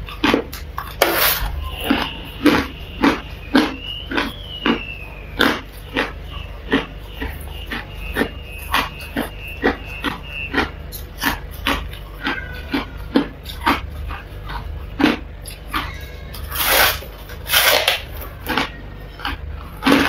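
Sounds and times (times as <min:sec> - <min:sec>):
chewing crunchy frost: 0:00.0 - 0:20.0.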